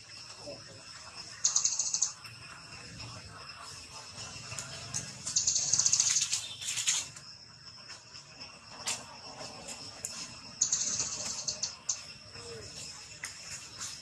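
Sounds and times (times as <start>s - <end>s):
steady thin high whine: 0.0s - 14.0s
rapid high-pitched clicking trill: 1.1s - 8.8s, 10.0s - 12.3s.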